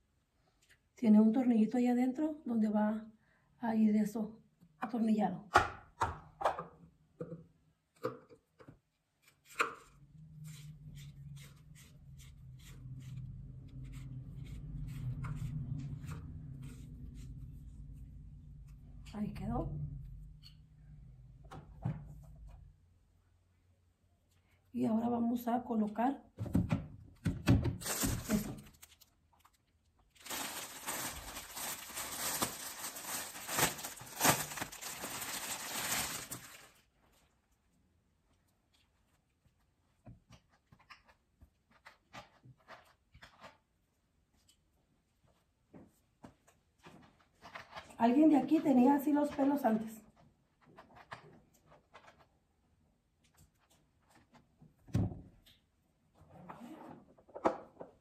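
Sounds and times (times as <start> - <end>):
plastic bag crinkling and rustling: 27.8 - 37.2.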